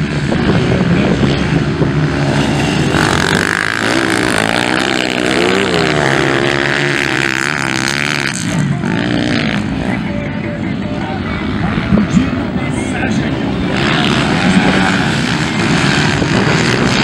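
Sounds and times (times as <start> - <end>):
dirt bike engines revving: 0.0 - 17.0.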